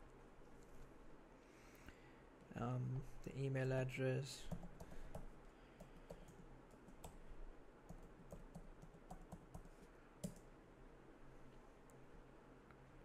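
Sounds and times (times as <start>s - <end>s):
faint low hum: 0.0s - 13.0s
keyboard typing clicks: 7.9s - 10.4s.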